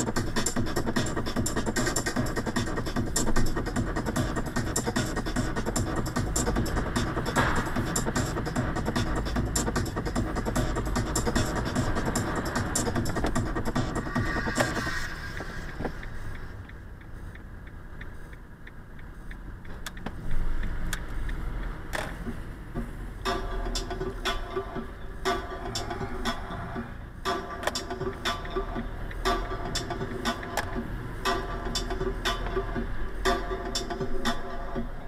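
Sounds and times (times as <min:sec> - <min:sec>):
car cabin hum: 0:00.0 - 0:16.8
car engine and tyre rumble: 0:00.0 - 0:35.0
steady ticking: 0:00.0 - 0:35.0
faint light ticks: 0:15.3 - 0:22.1.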